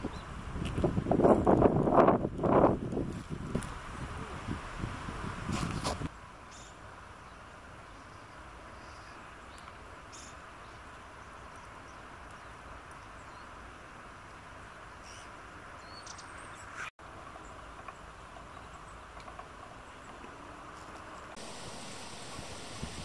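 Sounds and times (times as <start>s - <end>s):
faint outdoor background hiss: 0.0s - 23.0s
small birds chirping: 6.4s - 13.6s, 14.6s - 20.2s.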